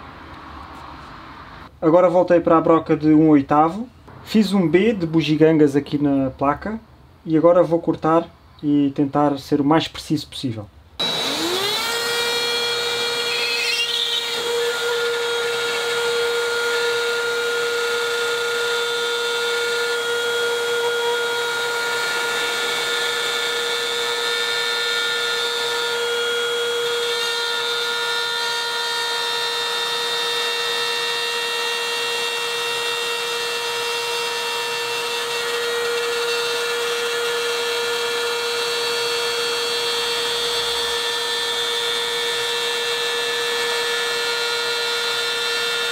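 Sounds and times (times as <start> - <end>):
drywall cutter whining: 11.0 - 45.9.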